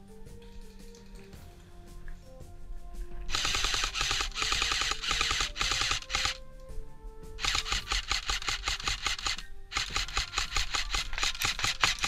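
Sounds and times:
electric rifle full-auto bursts: 3.3 - 6.4, 7.4 - 12.0.

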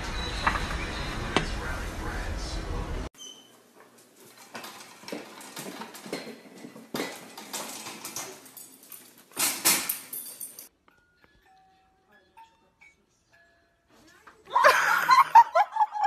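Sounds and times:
metal baby gate rattling: 4.4 - 10.6.

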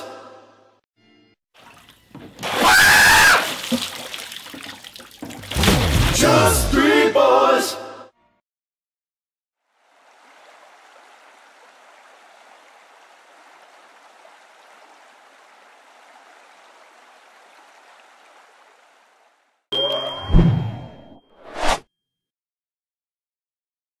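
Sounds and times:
hot tub water rushing and bubbling: 1.6 - 6.3, 9.8 - 19.6.

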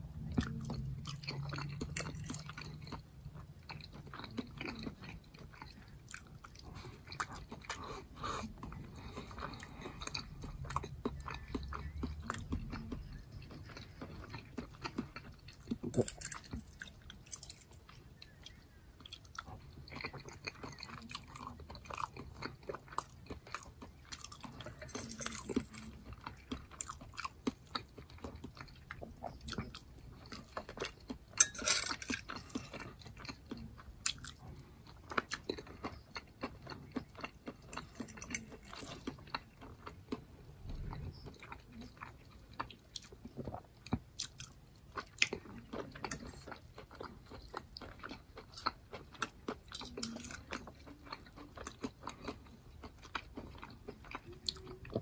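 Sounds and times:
chewing with wet mouth clicks: 0.1 - 55.0
fork scraping and tapping plate: 31.4 - 32.2.

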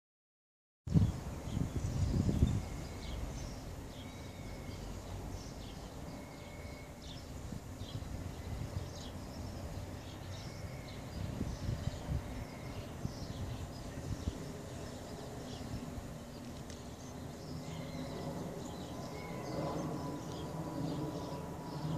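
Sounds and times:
wind rumbling on microphone: 0.9 - 3.6, 7.4 - 21.9
small birds chirping: 0.9 - 21.9.

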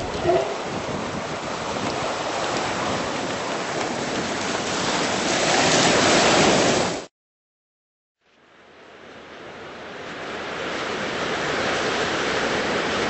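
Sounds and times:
wind noise: 0.0 - 7.0
ocean surf washing in: 0.0 - 7.1, 8.8 - 13.0.

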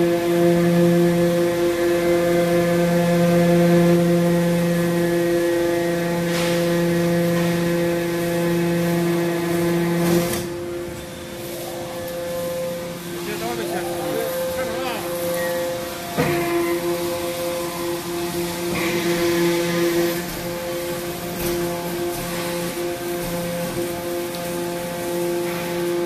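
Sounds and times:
hydraulic pump motor humming: 0.0 - 26.0.

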